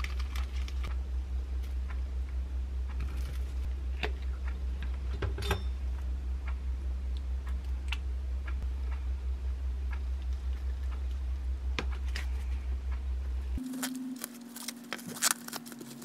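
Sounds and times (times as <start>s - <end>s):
low hum: 0.0s - 16.0s
plastic wrap crinkling: 13.6s - 16.0s.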